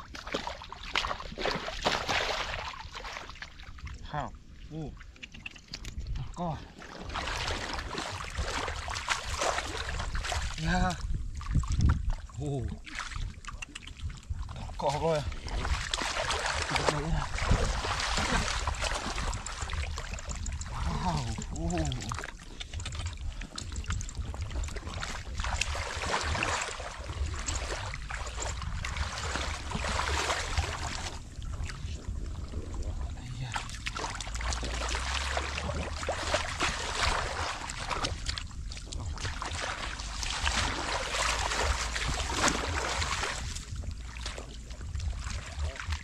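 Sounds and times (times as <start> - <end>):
hands splashing in water: 14.9 - 24.2.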